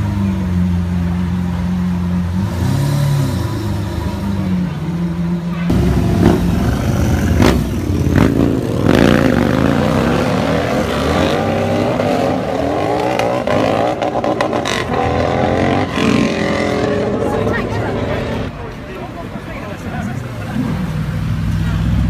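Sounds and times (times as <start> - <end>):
sports car engines revving: 0.0 - 22.0.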